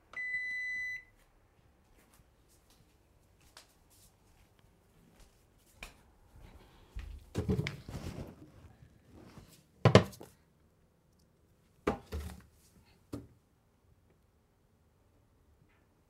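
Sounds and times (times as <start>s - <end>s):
wooden knocks and thuds: 9.8s - 10.3s.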